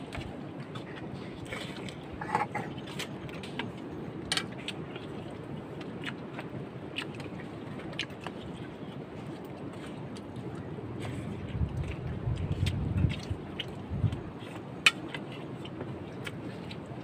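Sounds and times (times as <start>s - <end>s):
chewing: 0.0s - 17.0s
steady background noise: 0.0s - 17.0s.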